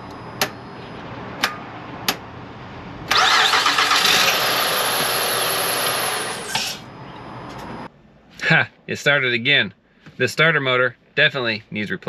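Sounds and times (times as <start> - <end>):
car engine starting and running: 1.1 - 7.8.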